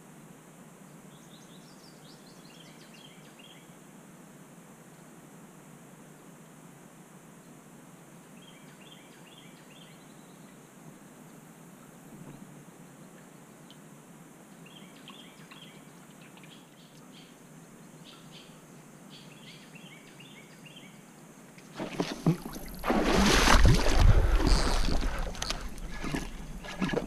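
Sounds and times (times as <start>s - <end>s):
fish splashing at water surface: 21.8s - 27.0s.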